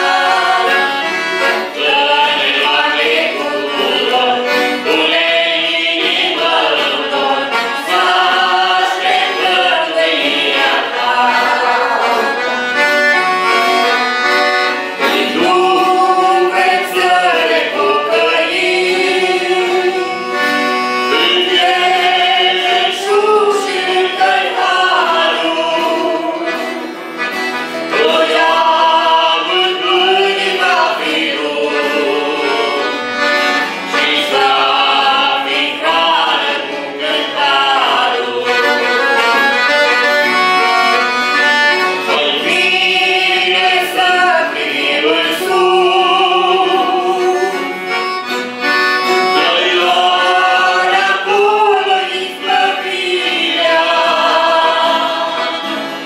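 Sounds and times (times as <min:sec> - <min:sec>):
people singing a hymn: 0:00.0 - 0:56.0
piano accordion: 0:00.0 - 0:56.0.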